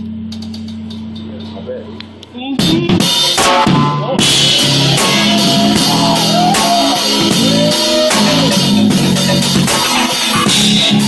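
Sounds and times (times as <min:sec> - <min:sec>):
loud drum hits: 0:02.6 - 0:11.0
live band playing: 0:03.0 - 0:11.0.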